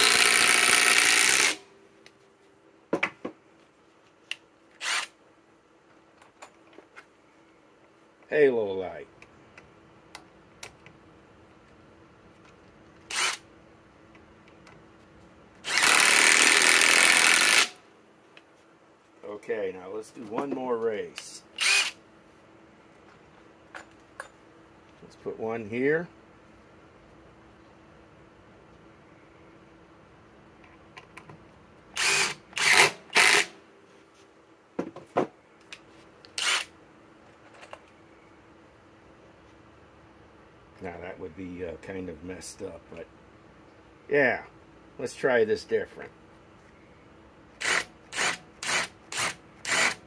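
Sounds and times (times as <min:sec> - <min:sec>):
impact drivers driving screws: 0:00.0 - 0:01.6, 0:04.8 - 0:05.1, 0:13.1 - 0:13.4, 0:15.6 - 0:17.8, 0:21.6 - 0:22.0, 0:32.0 - 0:33.5, 0:36.3 - 0:36.7, 0:47.6 - 0:50.0.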